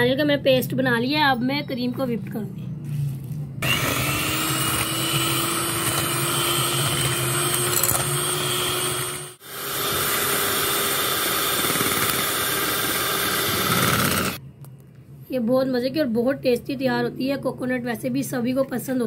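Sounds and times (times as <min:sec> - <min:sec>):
electric hand mixer whipping cream: 0:03.6 - 0:14.4.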